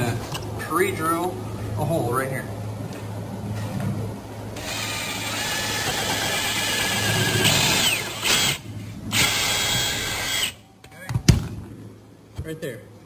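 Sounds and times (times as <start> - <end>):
cordless drill boring into wood: 4.6 - 10.6.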